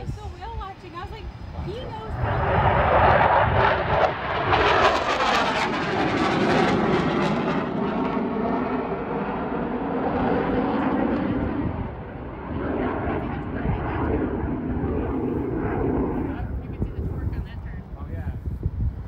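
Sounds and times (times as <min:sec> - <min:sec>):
jet roar overhead: 0:00.0 - 0:19.0.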